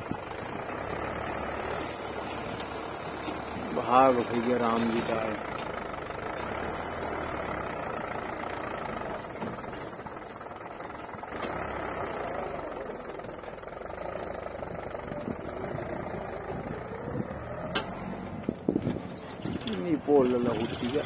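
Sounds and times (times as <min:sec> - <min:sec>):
diesel engine running: 0:00.0 - 0:21.0
backhoe hydraulics under load: 0:05.4 - 0:21.0.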